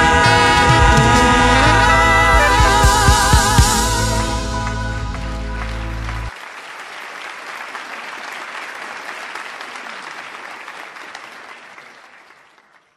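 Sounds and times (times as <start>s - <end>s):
live band held chord: 0.0s - 6.4s
audience applauding: 0.0s - 12.9s.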